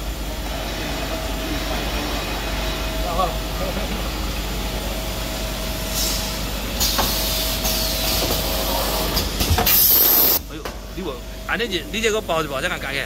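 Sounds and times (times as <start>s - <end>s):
factory machinery running: 0.0s - 13.0s
compressed air hissing: 5.8s - 10.4s.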